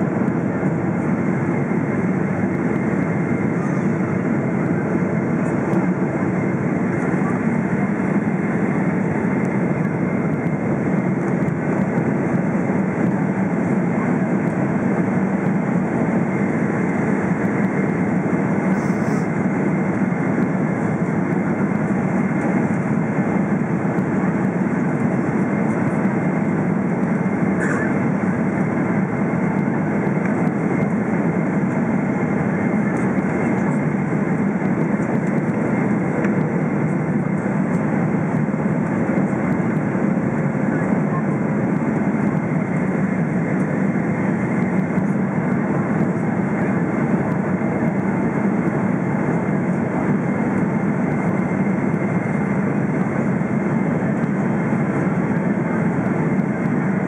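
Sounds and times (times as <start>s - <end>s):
jet engines rumbling in cabin: 0.0s - 57.0s.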